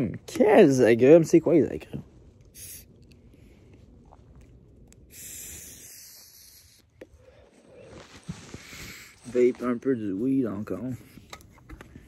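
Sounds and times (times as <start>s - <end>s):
breathy vaping hiss: 2.5s - 3.0s, 5.0s - 9.5s.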